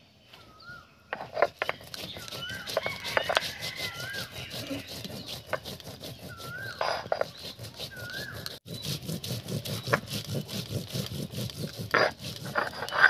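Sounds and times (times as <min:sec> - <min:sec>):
stone roller grinding on stone: 0:01.2 - 0:13.0
bird whistle: 0:07.9 - 0:08.6.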